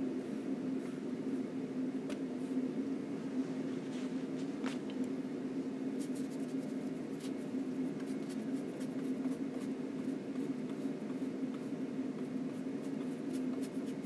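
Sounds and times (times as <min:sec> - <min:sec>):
steady low hum: 0:00.0 - 0:14.0
paintbrush scratching on panel: 0:06.0 - 0:14.0.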